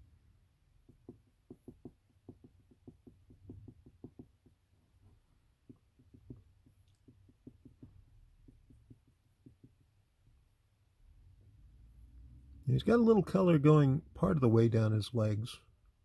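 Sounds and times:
marker tapping on whiteboard: 0.8 - 10.1.

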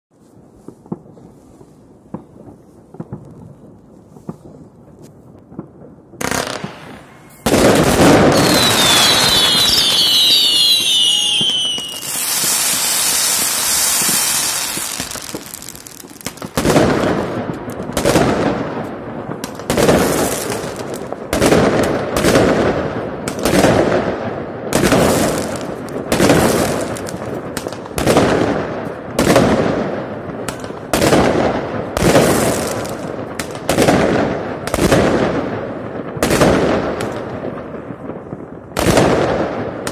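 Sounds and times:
firework blast: 5.6 - 39.9
firework whistles falling in pitch: 6.7 - 16.2
aerial shells bursting: 10.2 - 17.0.

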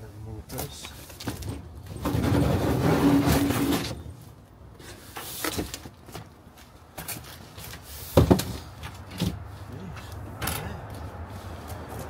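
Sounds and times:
cardboard scraping on metal: 2.0 - 4.1.

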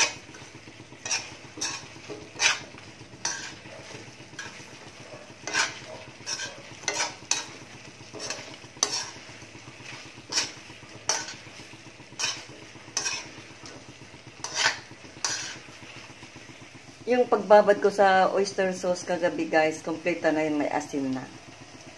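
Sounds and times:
spoon scraping a wok: 0.0 - 16.5
low sizzle of sauce: 0.0 - 21.9.

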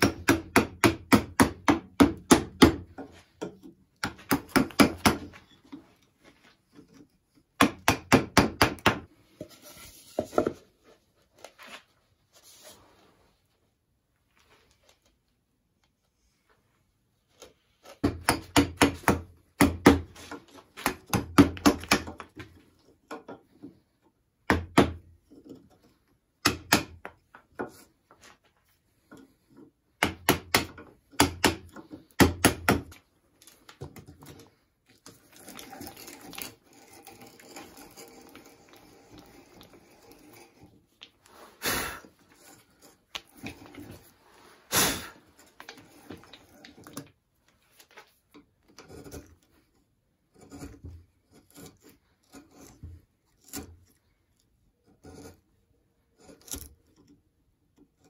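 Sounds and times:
mallet striking chisel: 0.0 - 2.9, 7.6 - 9.1, 18.0 - 20.1, 26.4 - 27.1, 30.0 - 32.9
chisel scraping wood: 25.0 - 47.0, 47.8 - 57.1.

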